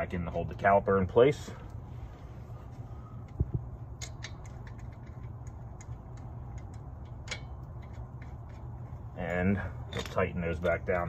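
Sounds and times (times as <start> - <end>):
steady low hum: 0.0 - 11.0
light metal clicks of bolts: 3.2 - 11.0.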